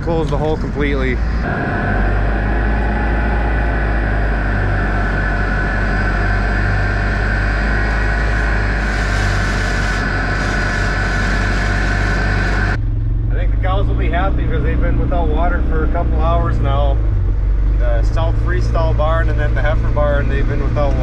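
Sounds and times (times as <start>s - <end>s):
mechanical hum: 0.0s - 21.0s.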